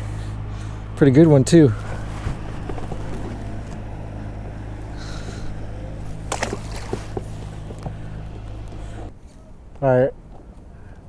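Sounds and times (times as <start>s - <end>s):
electric motor humming: 0.0s - 9.1s
fish splashing into water: 6.0s - 8.4s.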